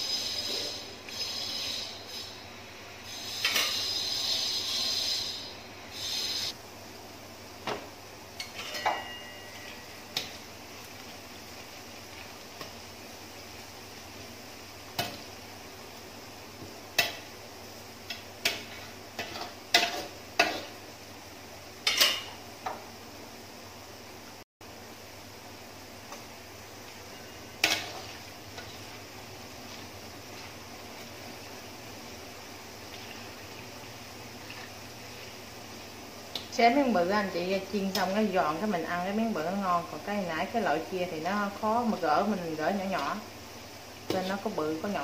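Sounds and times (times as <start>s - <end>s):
metal spatula scraping wok: 0.0s - 2.4s, 3.1s - 6.5s, 18.4s - 20.8s, 27.1s - 29.0s
food sizzling in oil: 0.0s - 45.0s.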